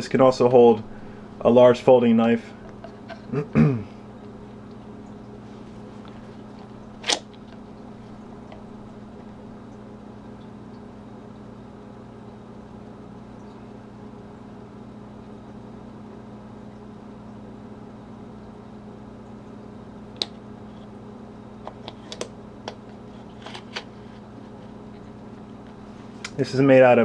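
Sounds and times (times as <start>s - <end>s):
low room hum: 0.0s - 27.0s
metal snap opening: 7.0s - 7.3s.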